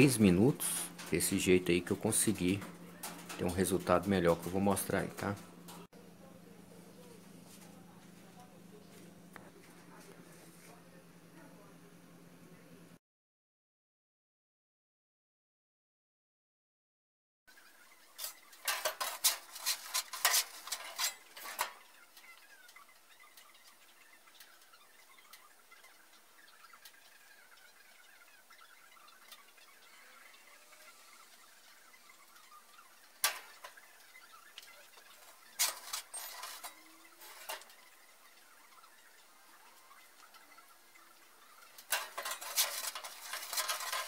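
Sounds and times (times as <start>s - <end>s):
metal clattering and scraping: 0.0s - 5.9s, 18.2s - 22.3s, 33.1s - 34.0s, 34.6s - 38.0s, 41.6s - 44.0s.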